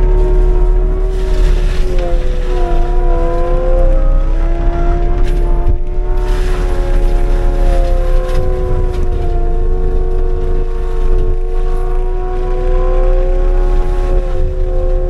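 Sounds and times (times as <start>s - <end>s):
diesel engine and mulcher drone: 0.0s - 15.0s.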